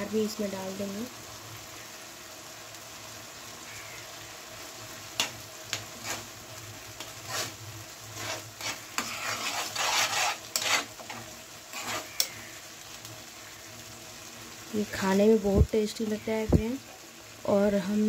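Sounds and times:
faint simmering: 0:00.0 - 0:18.0
spatula scraping a frying pan: 0:05.2 - 0:12.6.

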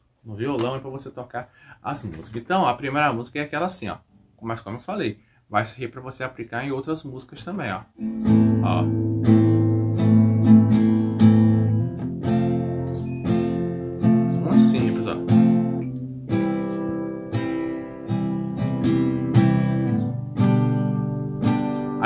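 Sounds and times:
acoustic guitar strumming: 0:08.0 - 0:22.0.

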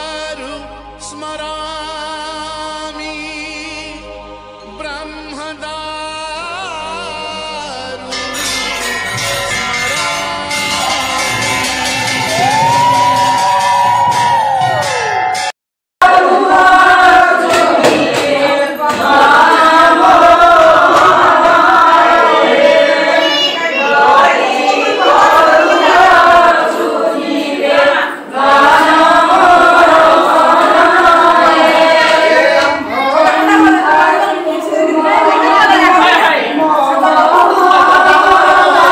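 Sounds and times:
group singing a hymn: 0:01.8 - 0:05.7, 0:16.0 - 0:38.9.

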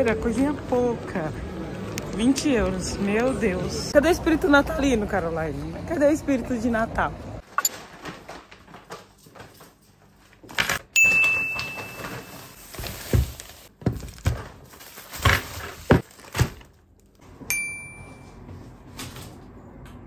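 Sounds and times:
short ringing tone: 0:17.5 - 0:18.4.

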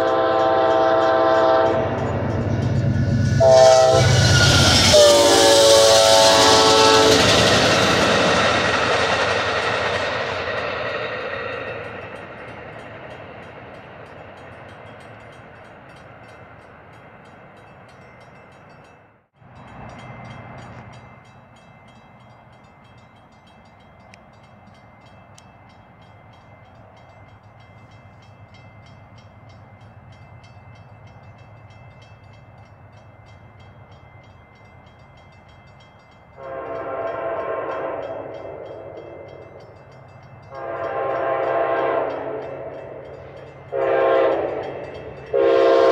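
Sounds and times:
train air horn blasts: 0:00.0 - 0:02.1, 0:03.2 - 0:08.4, 0:36.4 - 0:39.2, 0:40.5 - 0:43.1, 0:43.7 - 0:45.9
crossing bell ringing: 0:00.0 - 0:45.9
train rumble: 0:00.0 - 0:45.9.

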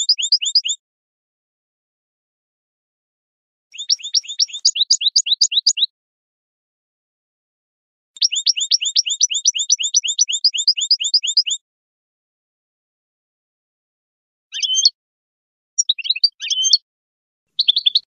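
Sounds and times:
goldfinch chirping: 0:00.0 - 0:00.8, 0:03.8 - 0:05.9, 0:08.2 - 0:11.6, 0:14.6 - 0:14.9, 0:15.8 - 0:16.8, 0:17.6 - 0:18.0.

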